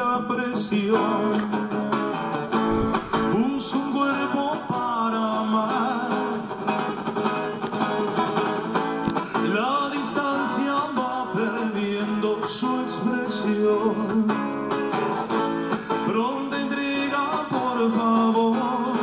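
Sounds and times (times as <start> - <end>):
man singing: 0.0 - 2.0, 2.7 - 6.5, 9.2 - 14.8, 15.8 - 19.0
acoustic guitar: 0.0 - 19.0.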